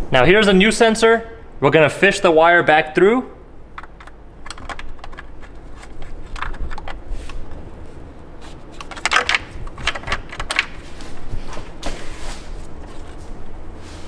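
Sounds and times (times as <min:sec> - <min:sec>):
plastic and metal parts clicking: 0:03.8 - 0:07.6, 0:08.7 - 0:10.8.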